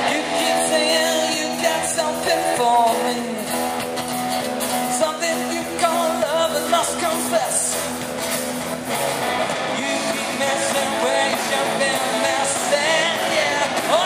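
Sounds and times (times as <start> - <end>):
person singing: 0.0 - 3.7, 4.8 - 7.9, 9.7 - 14.0
rock band playing: 0.0 - 14.0.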